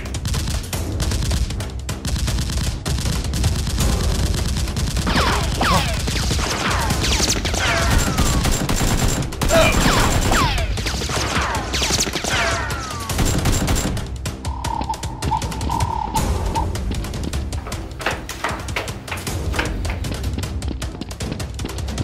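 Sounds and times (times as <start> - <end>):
automatic gunfire: 2.2 - 12.4, 13.0 - 14.0
falling whistling sounds: 14.5 - 16.6.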